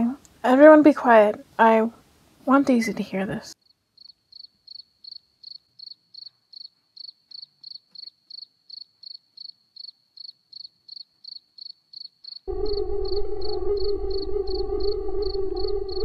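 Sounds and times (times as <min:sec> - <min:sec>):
cricket chirping: 0:03.6 - 0:16.0.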